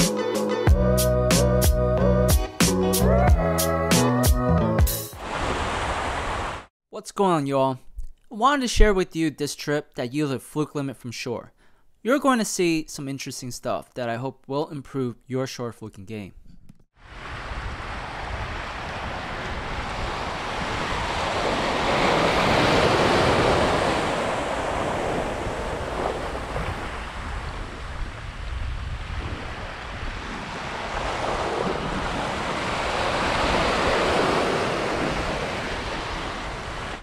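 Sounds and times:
ocean surf washing in: 5.0 - 6.7, 17.0 - 37.0
wind rumble on microphone: 17.0 - 34.0.

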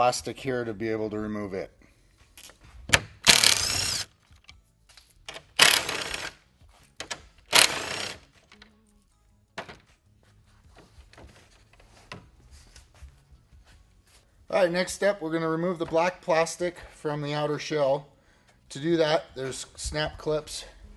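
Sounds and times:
power drill whirring: 3.2 - 4.1, 5.6 - 6.4, 7.5 - 8.2.

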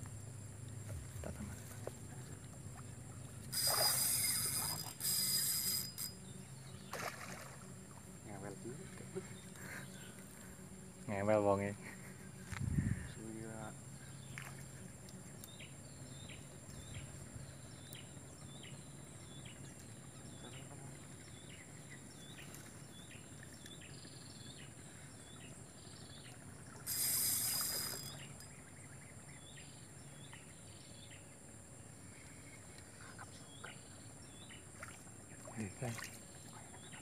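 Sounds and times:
steady high hiss: 3.4 - 6.2, 26.8 - 28.5.

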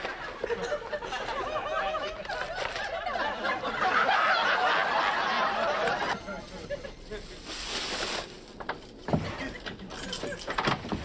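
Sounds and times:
audience laughing: 0.0 - 7.5.

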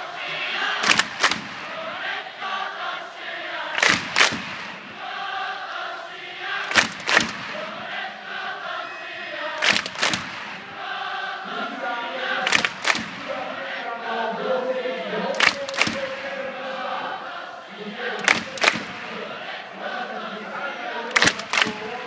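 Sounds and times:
crowd chanting in unison: 0.0 - 22.0
crowd double clap: 0.6 - 2.2, 3.7 - 5.1, 6.6 - 8.0, 9.6 - 10.8, 12.2 - 13.5, 15.3 - 16.4, 18.0 - 19.6, 21.1 - 22.0.

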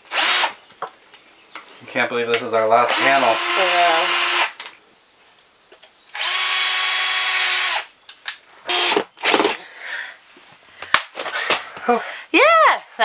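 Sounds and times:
power drill driving screws: 0.1 - 0.6, 2.9 - 4.6, 6.1 - 7.9, 8.7 - 9.6.

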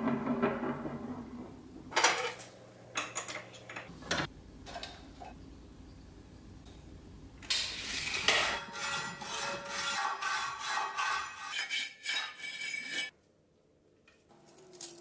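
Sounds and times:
file rasping on metal rod: 8.3 - 13.1.

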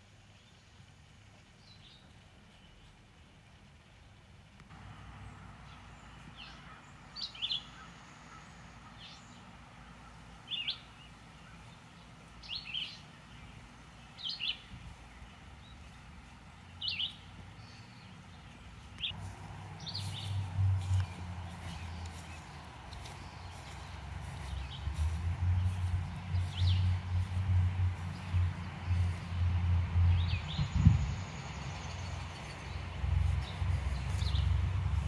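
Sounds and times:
small bird chirping: 10.1 - 19.2, 19.8 - 29.5
low rumble: 19.2 - 35.0.

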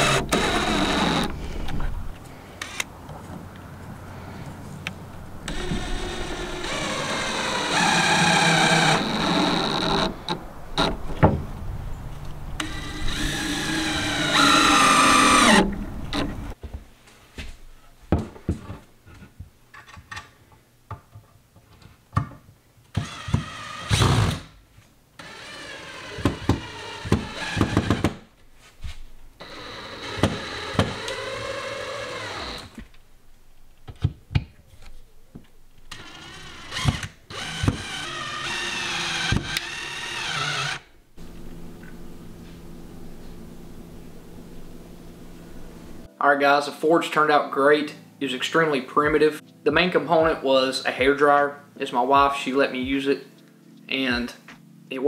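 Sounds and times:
drill driving screws: 0.0 - 1.4, 5.5 - 10.9, 12.6 - 16.2, 23.0 - 24.5, 25.2 - 28.2, 29.4 - 32.8, 35.9 - 40.9.

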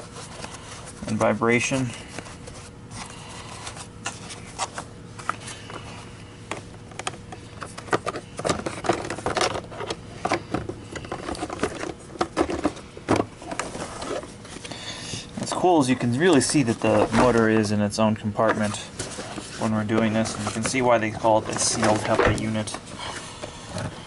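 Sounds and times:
plastic parts clicking and knocking: 6.5 - 14.2.

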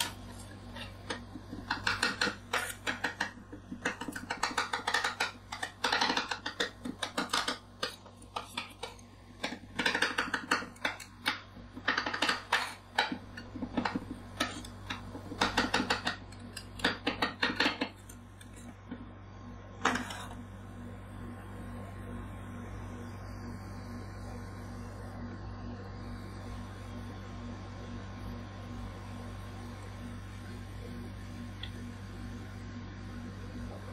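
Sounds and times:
steady low hum: 0.0 - 33.9.

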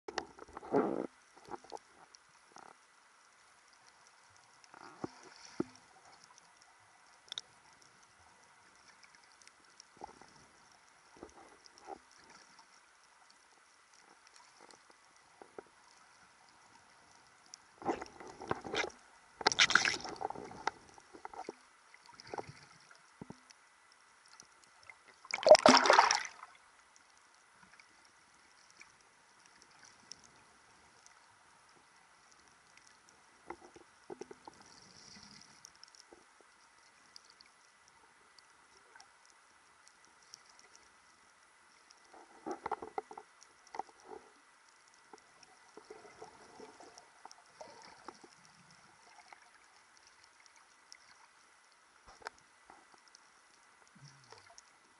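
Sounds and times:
faint steady hiss: 0.1 - 54.9
muffled underwater splashing: 25.2 - 26.6.

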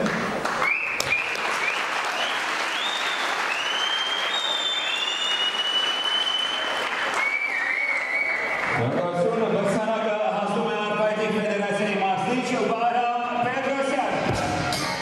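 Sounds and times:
audience applauding: 0.0 - 9.0
high whistles: 0.6 - 8.8.

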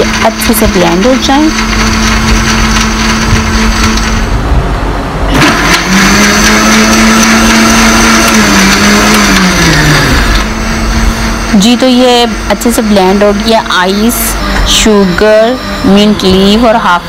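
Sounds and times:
blender motor whirring through ice: 0.0 - 4.3, 5.3 - 17.0.

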